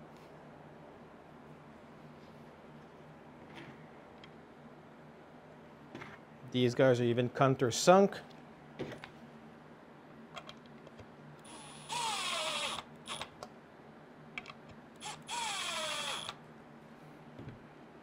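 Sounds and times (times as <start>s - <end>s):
cordless drill driving screws: 11.5s - 13.3s, 15.0s - 16.4s.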